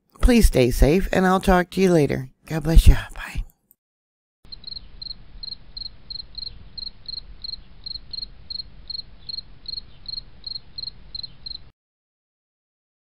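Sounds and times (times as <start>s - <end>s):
cricket chirping: 4.5s - 11.7s.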